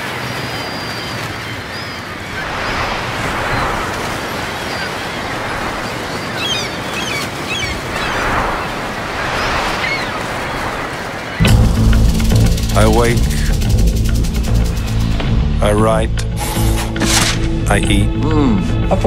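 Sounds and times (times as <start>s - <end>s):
surf washing onto beach: 0.0s - 14.8s.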